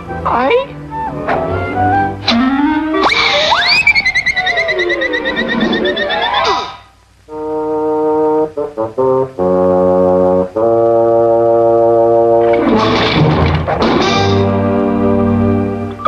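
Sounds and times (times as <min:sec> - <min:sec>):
noisy crash: 0:02.2 - 0:06.9, 0:12.4 - 0:14.6
brass section playing chords: 0:07.3 - 0:13.0.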